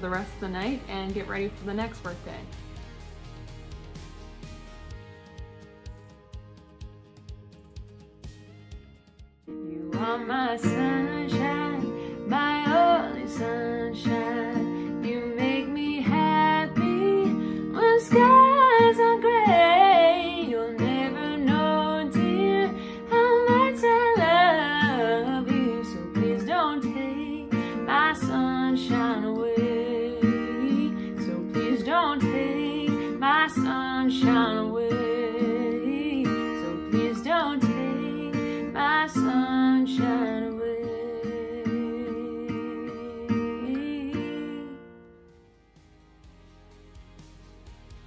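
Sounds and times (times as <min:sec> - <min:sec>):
strummed acoustic guitar: 0:00.0 - 0:48.0
woman singing: 0:09.5 - 0:45.0.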